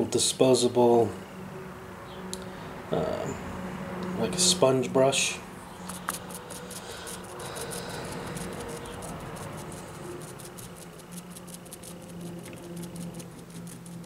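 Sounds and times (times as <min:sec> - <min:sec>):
foam brush dabbing paint: 0:05.9 - 0:14.0.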